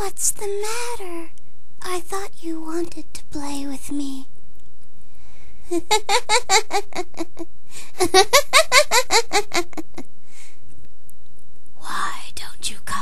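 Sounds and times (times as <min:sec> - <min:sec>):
woman giggling: 0:05.7 - 0:10.0.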